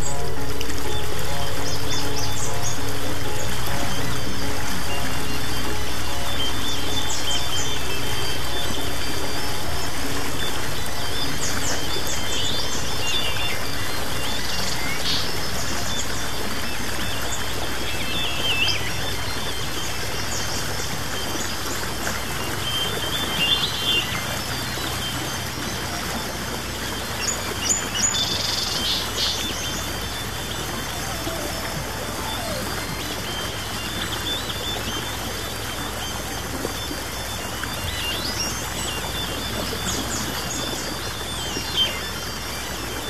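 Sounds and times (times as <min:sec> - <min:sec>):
birds chirping: 0:00.0 - 0:43.0
soft music drone: 0:00.0 - 0:43.0.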